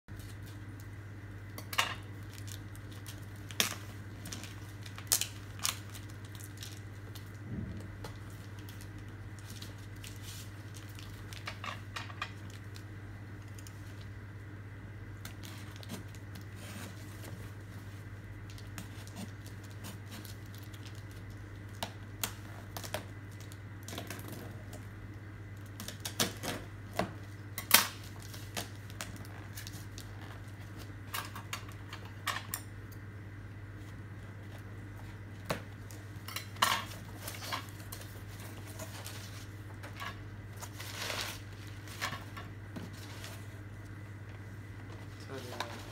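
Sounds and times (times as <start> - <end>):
steady low hum: 0.1 - 45.9
cardboard rustling and scraping: 15.4 - 18.2, 36.9 - 43.7.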